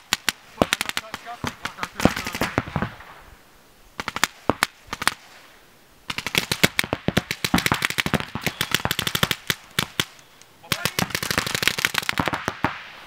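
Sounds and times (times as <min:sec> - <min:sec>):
paintball markers firing: 0:00.1 - 0:02.9, 0:06.1 - 0:12.8.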